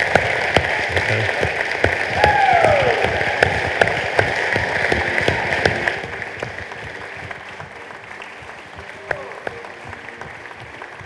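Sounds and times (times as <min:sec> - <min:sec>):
crowd applauding: 0:00.0 - 0:11.0.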